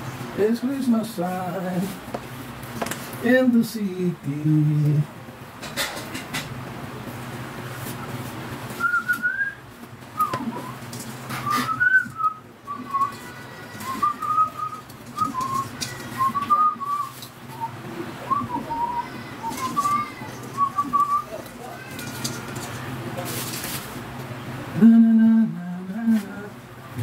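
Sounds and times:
man whistling a melody: 8.8s - 9.6s, 10.2s - 10.8s, 11.4s - 13.2s, 13.8s - 19.0s.

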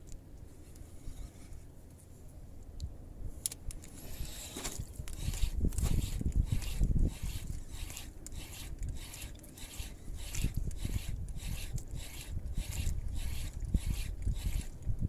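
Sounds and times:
fishing reel whirring: 4.0s - 14.9s.

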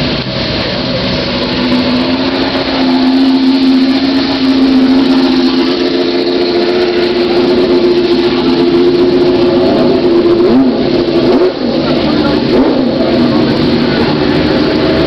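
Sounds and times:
race car engines at low revs: 0.0s - 15.0s.

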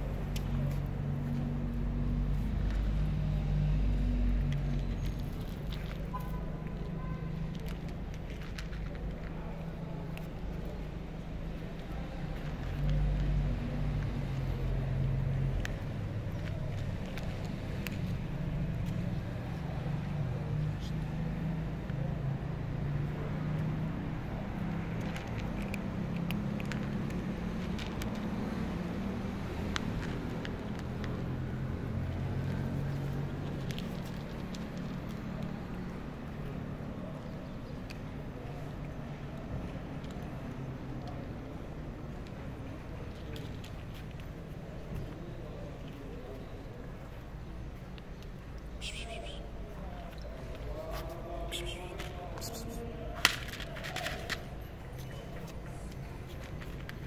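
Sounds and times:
kitten crunching dry kibble: 0.2s - 14.8s, 24.6s - 36.9s.

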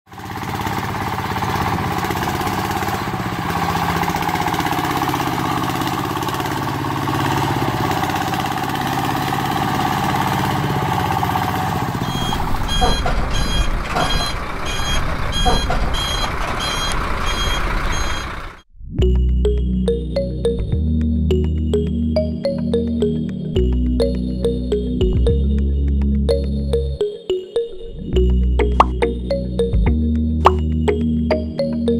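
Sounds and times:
high beeping: 12.0s - 18.3s
deep bass: 18.7s - 27.0s, 28.0s - 31.9s.

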